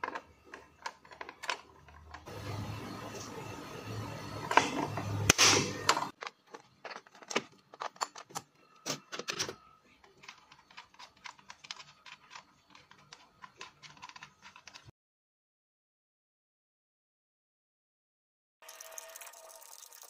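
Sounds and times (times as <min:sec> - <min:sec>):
metal and plastic clicks: 0:05.9 - 0:14.9.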